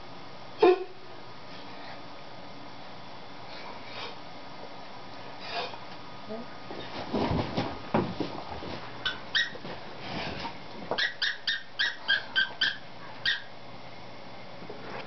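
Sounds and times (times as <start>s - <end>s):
dog toy squeaking: 9.1s - 9.6s, 11.0s - 13.5s.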